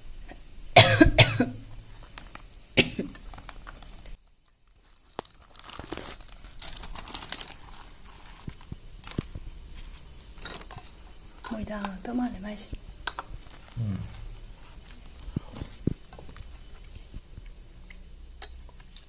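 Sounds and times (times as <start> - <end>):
person coughing: 0.8 - 1.6, 2.8 - 3.2
plastic bag rustling: 1.8 - 12.7, 13.3 - 17.2.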